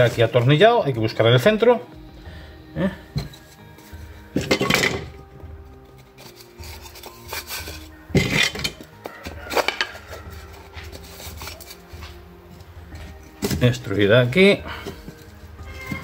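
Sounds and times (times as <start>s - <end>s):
plywood and metal rod scraping: 3.2s - 12.2s, 14.8s - 16.0s.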